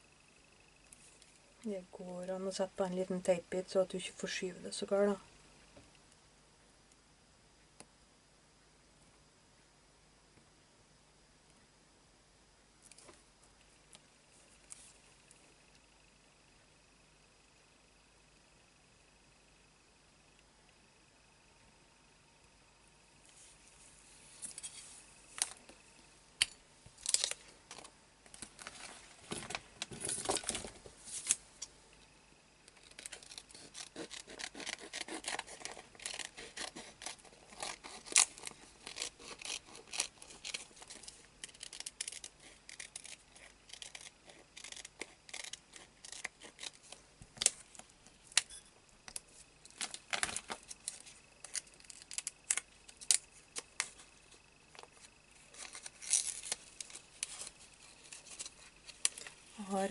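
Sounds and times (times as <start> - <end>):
scissors snipping plastic: 32.7 - 47.6.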